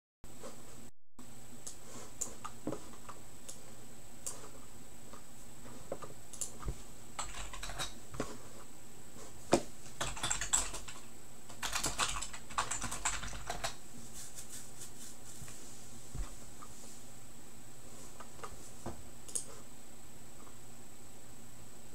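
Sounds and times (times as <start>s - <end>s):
keyboard typing: 6.3s - 6.6s, 7.2s - 8.0s, 9.9s - 13.8s.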